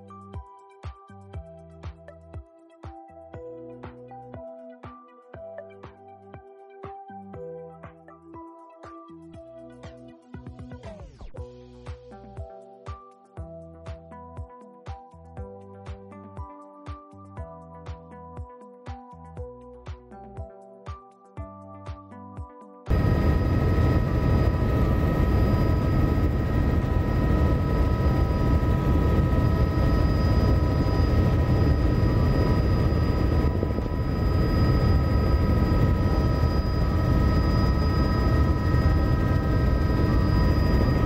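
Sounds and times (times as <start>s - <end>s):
music: 0.0s - 41.0s
helicopter engine and rotors: 22.9s - 41.0s
high whining tones: 22.9s - 41.0s.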